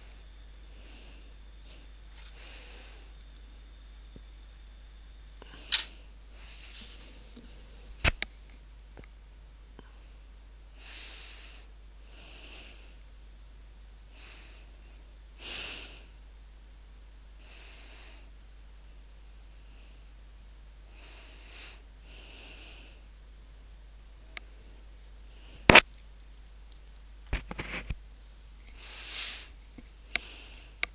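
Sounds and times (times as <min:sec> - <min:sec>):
person breathing: 0:00.0 - 0:03.2, 0:05.4 - 0:08.0, 0:09.8 - 0:13.0, 0:14.1 - 0:16.2, 0:20.9 - 0:23.1, 0:28.7 - 0:30.9.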